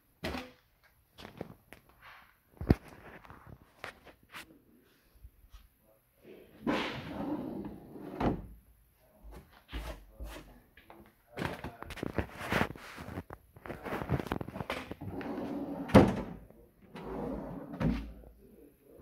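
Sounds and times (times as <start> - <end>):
wooden drawer sliding open: 15.0 - 18.2.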